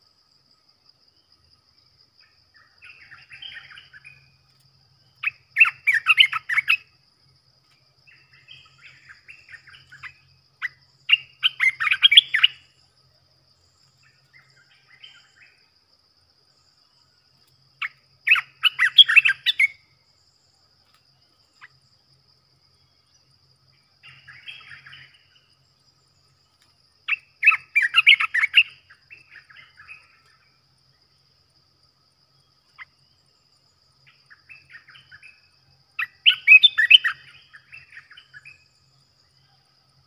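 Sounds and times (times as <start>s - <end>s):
bird singing: 0.0s - 40.0s
high insect trill: 0.0s - 40.0s
soft bird twittering: 2.2s - 7.0s, 8.0s - 12.9s, 16.5s - 20.6s, 22.7s - 30.7s, 32.4s - 39.6s.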